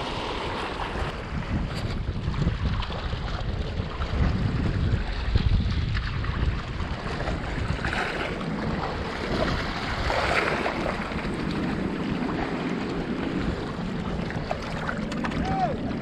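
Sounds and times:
waves splashing over rocks: 0.0 - 16.0
wind buffeting microphone: 0.0 - 16.0.

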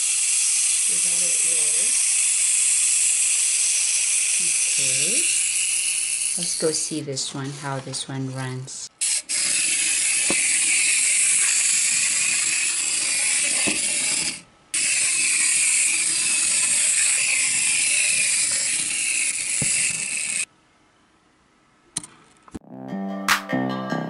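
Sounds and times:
wind-up toy motor buzzing: 0.0 - 6.9, 9.0 - 20.5.

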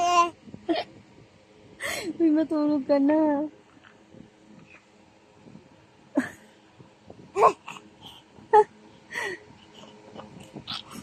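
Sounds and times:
baby making breathy sounds: 9.6 - 11.0.

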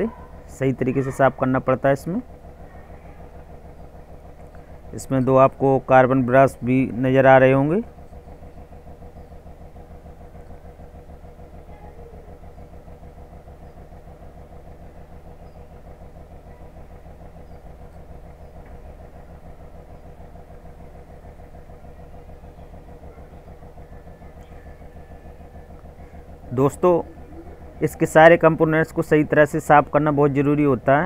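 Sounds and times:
engine idling: 0.0 - 31.0.

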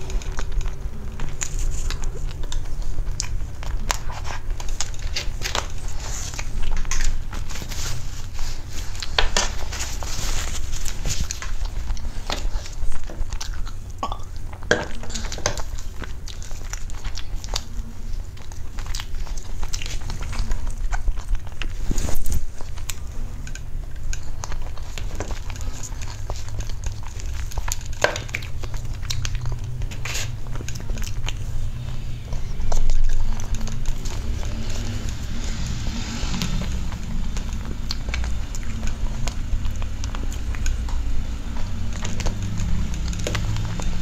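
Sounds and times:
chewing and mouth sounds: 0.0 - 44.0.

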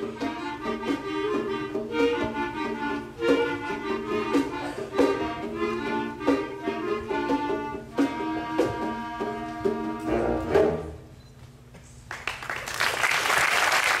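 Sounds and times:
concert band playing: 0.0 - 11.2
audience applause: 12.1 - 14.0.

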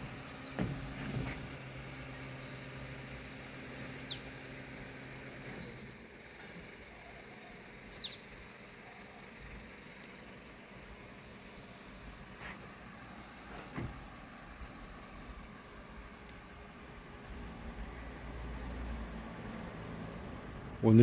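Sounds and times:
steady low hum: 0.0 - 21.0
bird chirping: 3.6 - 4.6, 7.0 - 10.3.

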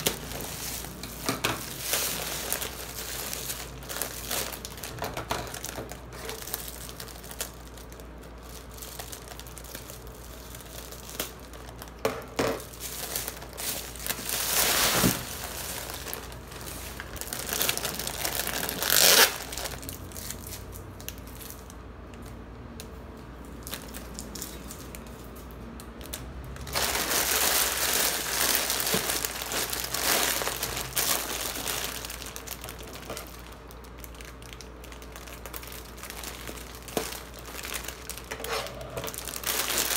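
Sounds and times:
plastic wrappers crinkling: 0.0 - 39.9.

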